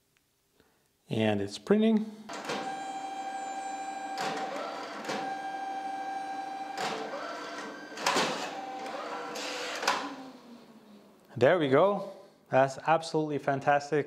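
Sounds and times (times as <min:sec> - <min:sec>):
photo printer motor whine: 0:02.4 - 0:11.1
printer rasping surges: 0:06.6 - 0:10.6.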